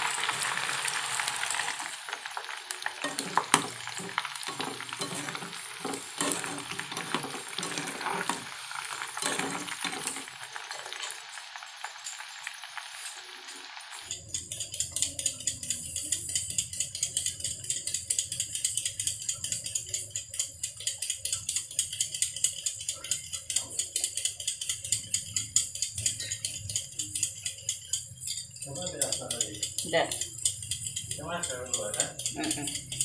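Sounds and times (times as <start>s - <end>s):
peeler scraping carrot: 23.1s - 33.0s.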